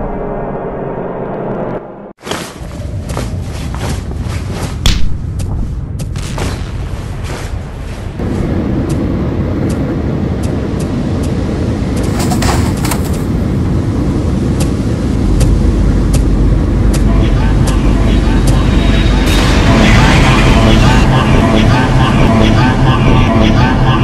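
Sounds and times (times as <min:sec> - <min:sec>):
heavy continuous rumble: 0:02.2 - 0:24.0
sharp bangs and impacts: 0:14.6 - 0:22.1.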